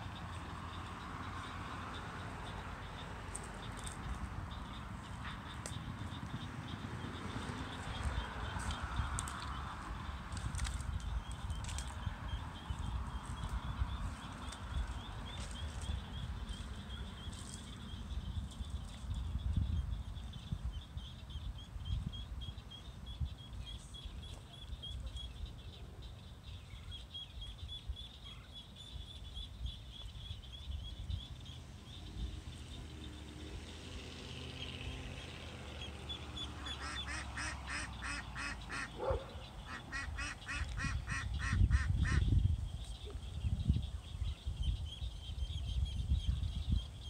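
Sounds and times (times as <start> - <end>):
ducklings peeping: 36.1 - 47.0.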